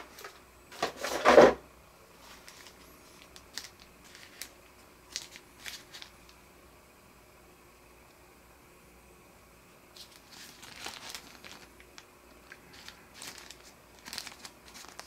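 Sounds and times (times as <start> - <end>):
light clicks and rustles of handling: 2.2 - 6.4
plastic bag crinkling: 2.2 - 6.4, 10.0 - 15.0.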